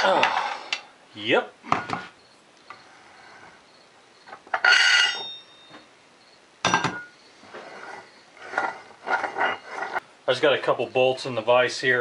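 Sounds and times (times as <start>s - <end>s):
metallic clanks: 4.4s - 5.8s, 6.6s - 10.0s.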